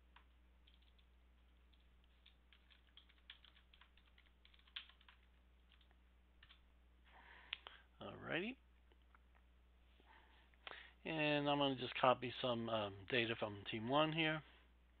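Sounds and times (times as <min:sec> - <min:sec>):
keyboard typing: 0:00.0 - 0:06.6
faint low hum: 0:00.0 - 0:15.0.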